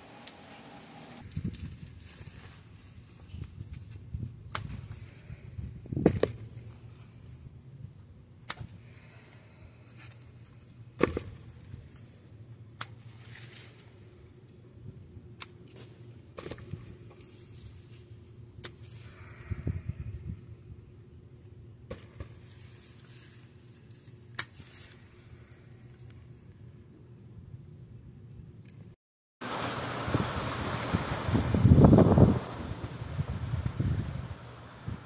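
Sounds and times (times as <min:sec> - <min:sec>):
leaves rustling: 0:01.2 - 0:07.5, 0:08.8 - 0:14.6, 0:22.0 - 0:26.6, 0:29.4 - 0:35.0
pruning shears snipping: 0:24.3 - 0:24.9.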